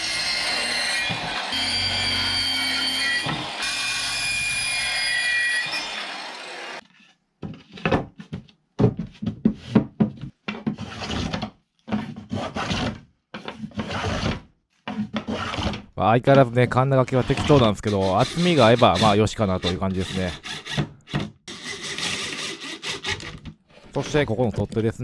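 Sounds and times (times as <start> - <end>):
circular saw cutting wood: 0.0 - 6.8, 17.0 - 20.8, 21.5 - 24.8
hand plane shaving wood: 17.1 - 20.8, 21.5 - 24.2.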